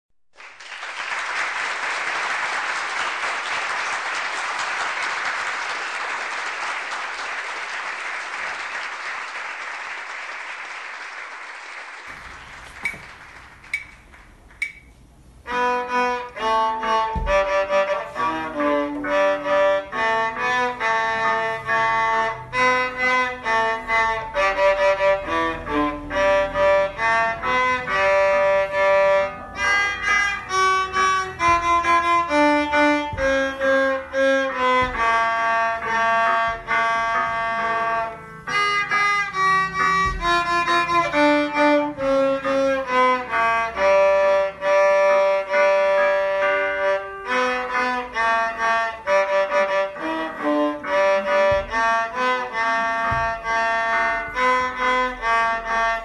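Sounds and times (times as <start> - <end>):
violin melody: 15.4 - 56.0.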